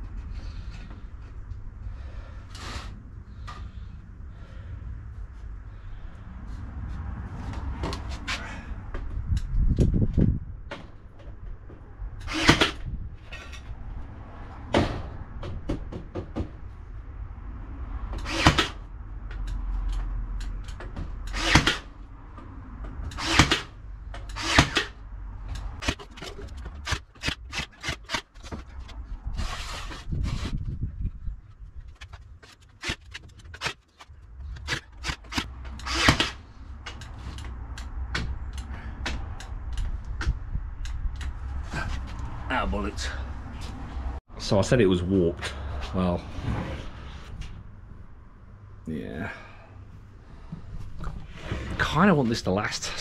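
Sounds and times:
nail gun shots into wood: 0:23.2 - 0:23.7.

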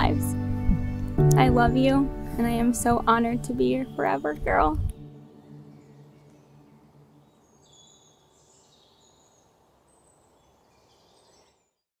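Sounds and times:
high bird chirps: 0:05.3 - 0:09.5.

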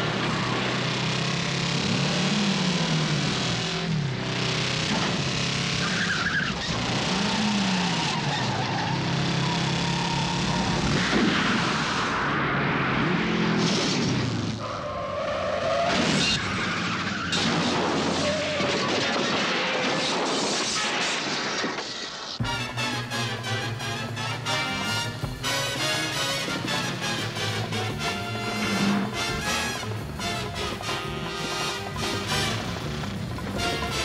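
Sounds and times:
tyres skidding: 0:00.0 - 0:12.2, 0:13.7 - 0:20.0, 0:22.4 - 0:34.0
vehicle engines revving past: 0:22.4 - 0:34.0.

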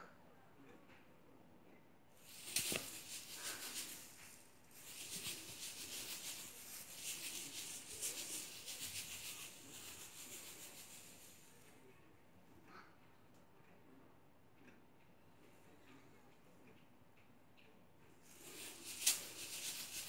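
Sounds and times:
tinsel toy rustling and crinkling: 0:02.2 - 0:11.7, 0:18.2 - 0:20.0.

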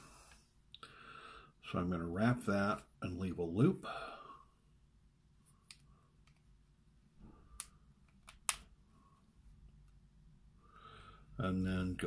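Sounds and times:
sharp clicks: 0:07.6 - 0:08.7.

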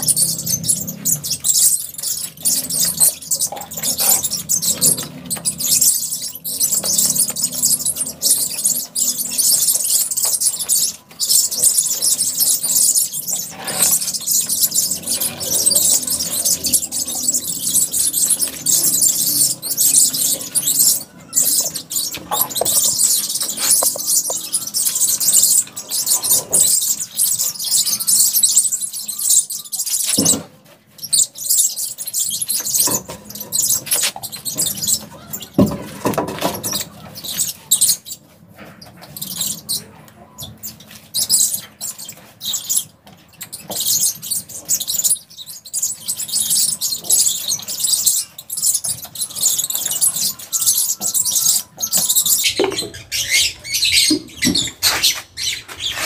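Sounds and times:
paintbrush scrubbing concrete: 0:53.6 - 0:56.0.

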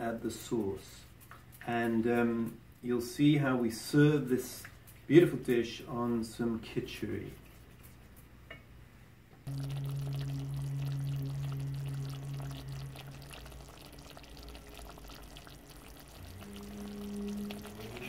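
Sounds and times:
low steady hum: 0:03.9 - 0:18.0
thick sauce simmering: 0:09.5 - 0:18.0.

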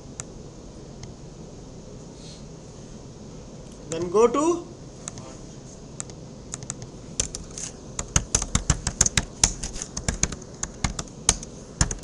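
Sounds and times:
keyboard typing: 0:06.5 - 0:12.0.

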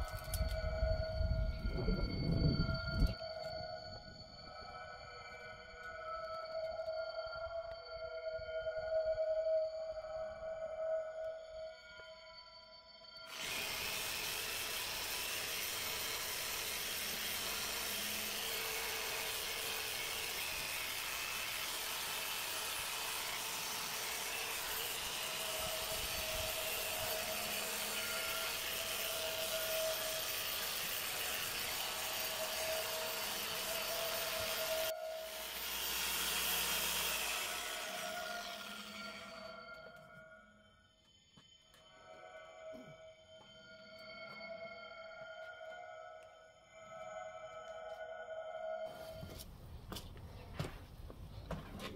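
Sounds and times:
orbital sander running: 0:13.3 - 0:39.5.

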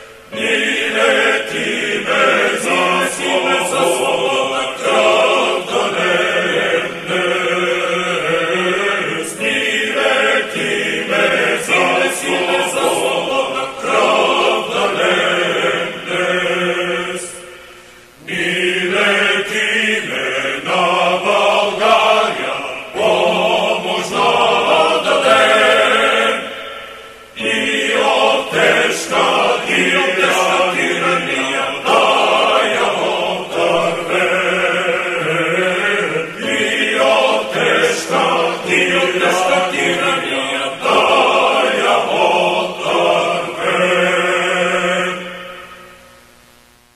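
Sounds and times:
choir singing a chant: 0:00.0 - 0:46.0.

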